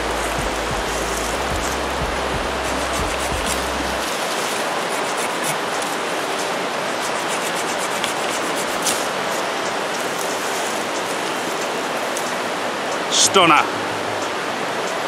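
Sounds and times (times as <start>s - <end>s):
river rushing over rocks: 0.0s - 15.0s
hand saw cutting branch: 2.6s - 9.4s.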